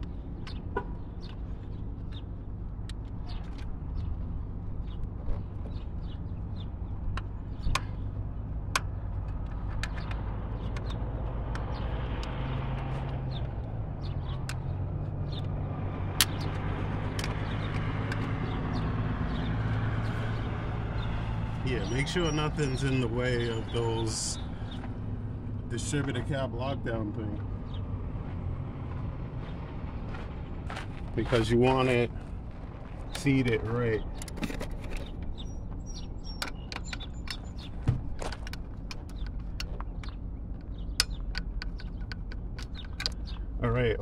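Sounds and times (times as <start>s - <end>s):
low engine hum: 0.0s - 44.0s.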